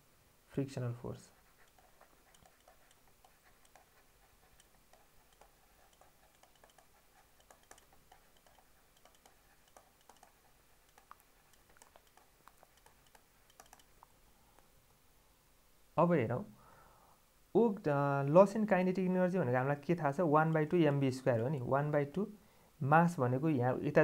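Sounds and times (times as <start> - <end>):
stylus ticking on tablet screen: 1.6 - 14.1.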